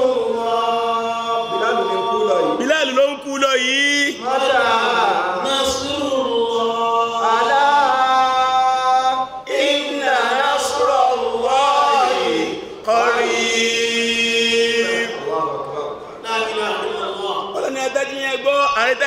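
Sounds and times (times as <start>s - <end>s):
man chanting: 0.0s - 4.2s, 16.0s - 19.0s.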